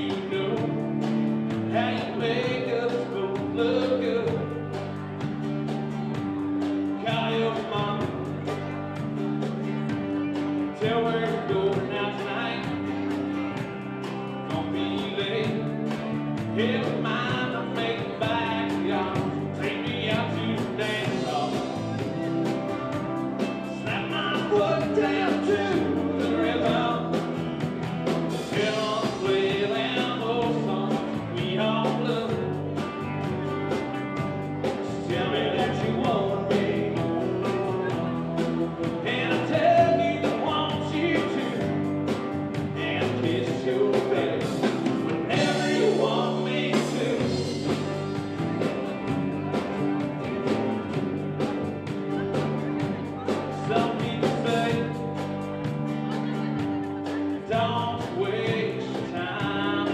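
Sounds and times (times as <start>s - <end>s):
person singing: 0.0s - 5.1s, 6.9s - 8.4s, 14.4s - 27.4s, 28.3s - 41.9s, 42.6s - 48.8s, 52.0s - 59.9s
country band playing: 0.0s - 59.9s.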